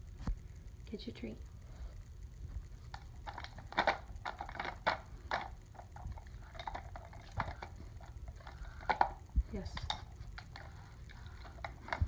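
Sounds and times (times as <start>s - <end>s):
plastic cylinders knocking and clattering: 3.0s - 12.0s.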